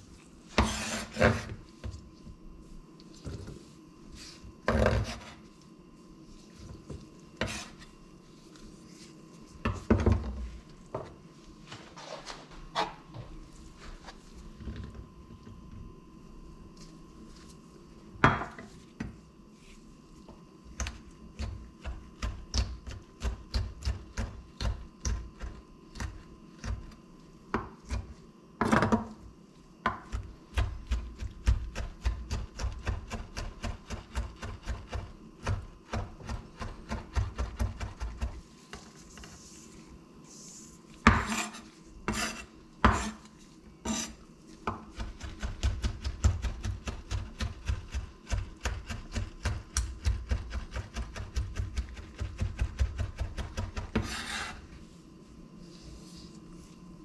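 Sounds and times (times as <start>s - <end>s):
knife chopping on wooden board: 41.1s - 43.2s.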